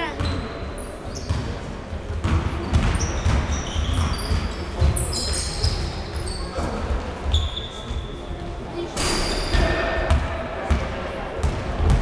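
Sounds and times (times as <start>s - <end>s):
sneakers squeaking on court: 0.0s - 8.2s
basketball bouncing on wooden floor: 2.2s - 5.0s.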